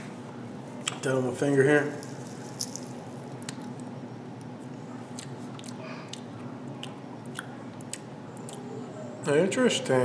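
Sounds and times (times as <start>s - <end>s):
low room hum: 0.0s - 10.0s
mouth clicks and smacks: 5.1s - 8.7s.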